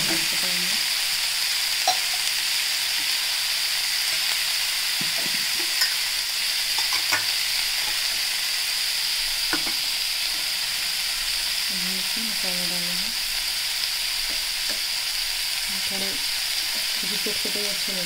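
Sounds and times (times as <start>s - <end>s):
vegetables sizzling in hot oil: 0.0s - 18.0s
metal spoon clinking on pan: 1.8s - 2.3s, 5.7s - 6.0s.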